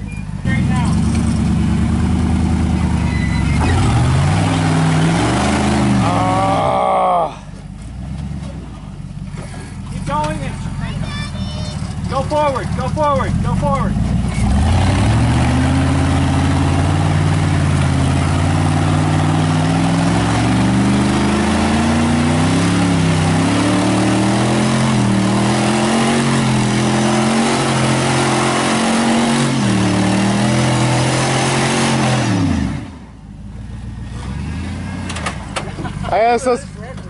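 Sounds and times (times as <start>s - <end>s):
truck engine revving: 0.0s - 36.6s.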